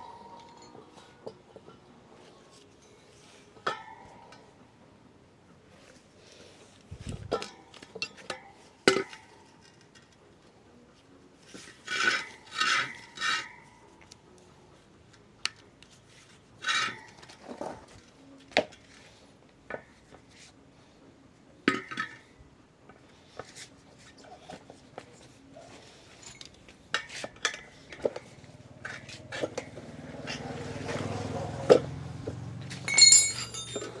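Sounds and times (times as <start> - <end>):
metal tools scraping wheel rim: 11.6 - 13.9, 16.6 - 18.0, 26.0 - 31.0, 32.7 - 34.0
sharp metal clinks: 32.8 - 34.0.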